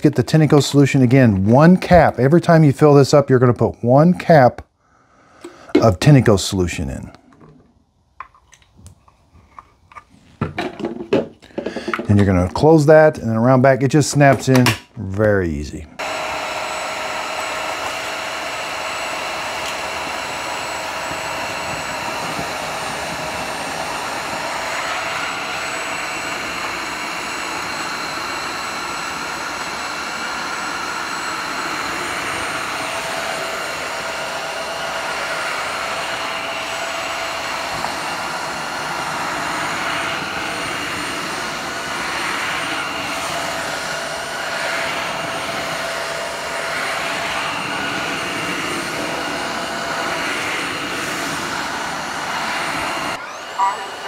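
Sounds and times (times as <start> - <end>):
floor cleaner motor whine: 16.0 - 54.0.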